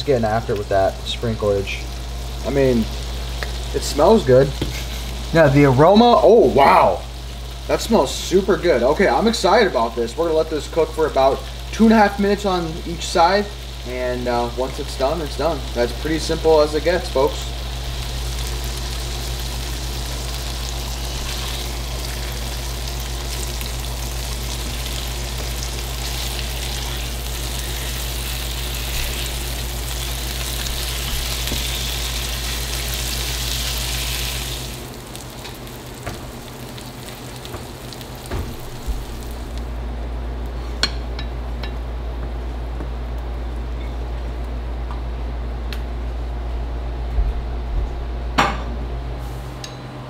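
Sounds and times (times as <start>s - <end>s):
fish sizzling in a frying pan: 1.3s - 39.6s.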